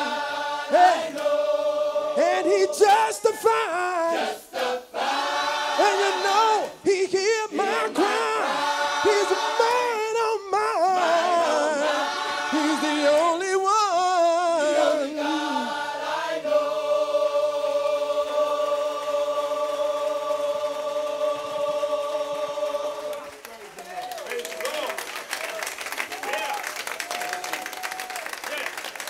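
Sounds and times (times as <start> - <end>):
man singing with vibrato: 0.0 - 1.0, 2.1 - 4.8, 5.7 - 15.8
gospel choir singing: 0.0 - 23.4.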